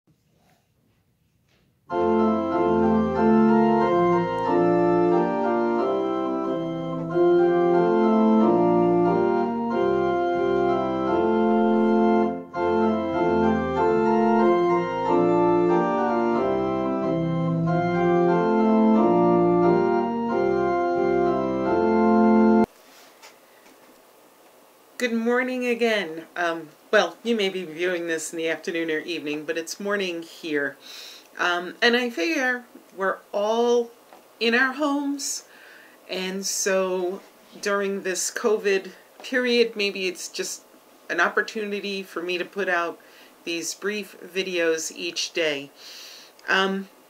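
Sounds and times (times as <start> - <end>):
sustained organ chords: 1.9 - 22.7.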